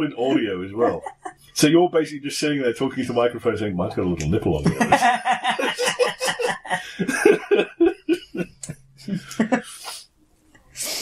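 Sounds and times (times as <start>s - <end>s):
people laughing hard: 4.6s - 9.8s.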